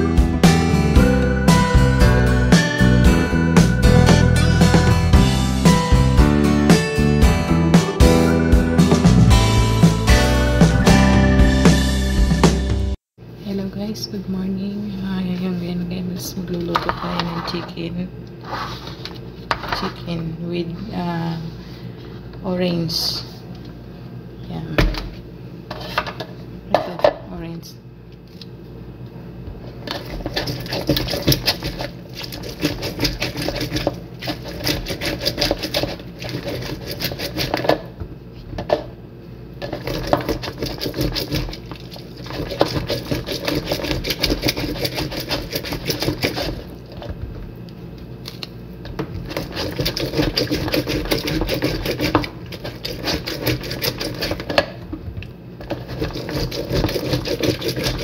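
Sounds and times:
orange rasping on citrus reamer: 29.9s - 37.8s, 39.6s - 46.7s, 49.2s - 54.6s, 55.6s - 58.0s.

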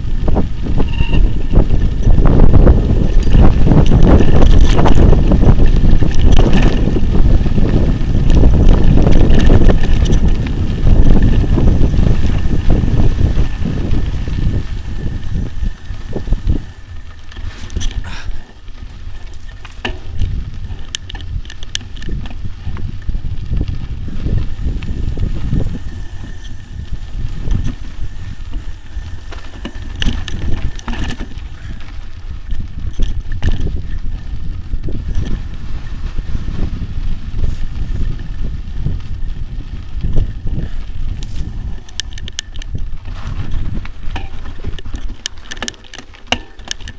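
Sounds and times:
bike rattling over bumps: 0.0s - 46.9s
wind rumble on microphone: 0.0s - 46.9s.

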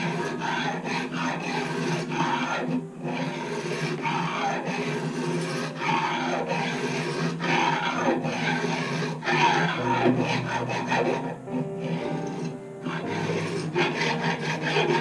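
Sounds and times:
file rasping on guitar frets: 0.0s - 15.0s.

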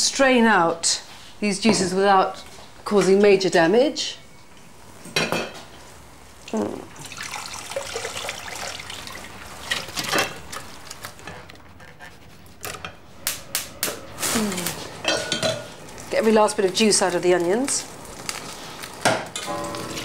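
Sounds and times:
liquid trickling into a jug: 6.9s - 9.9s.

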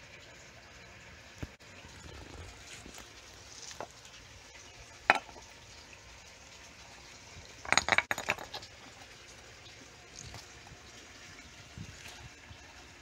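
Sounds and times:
glass jar knocking on stone: 5.1s - 5.4s, 7.6s - 8.7s.

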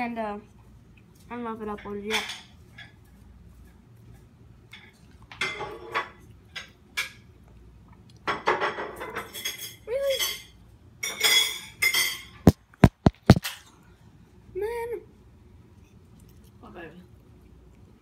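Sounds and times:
dishes and cutlery clinking: 4.7s - 7.3s, 8.3s - 13.6s
sharp knock: 12.5s - 13.4s.

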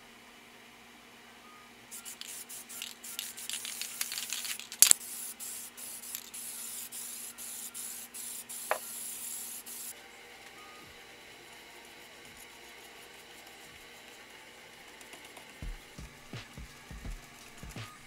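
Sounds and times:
aerosol spray can hissing: 1.9s - 10.0s.

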